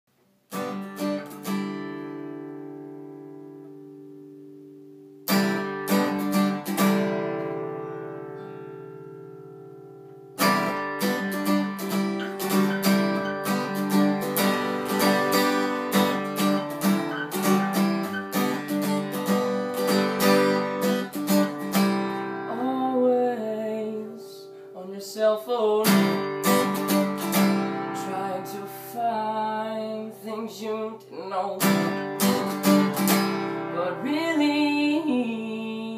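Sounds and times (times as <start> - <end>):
acoustic guitar strumming: 0.5 - 35.9
soft wordless vocal: 28.0 - 31.7, 33.8 - 35.9.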